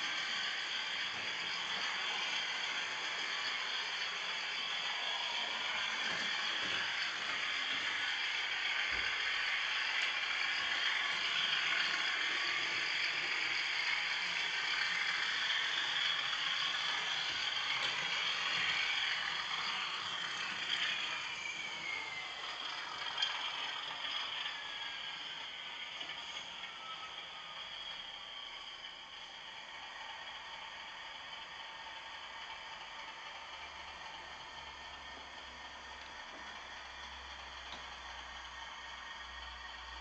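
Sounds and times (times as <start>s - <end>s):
faint falling whine: 0.0s - 40.0s
model train motor whirring: 0.0s - 40.0s.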